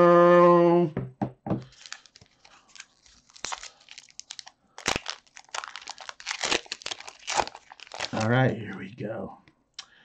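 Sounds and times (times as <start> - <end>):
foil wrapper crinkling: 1.7 - 8.6.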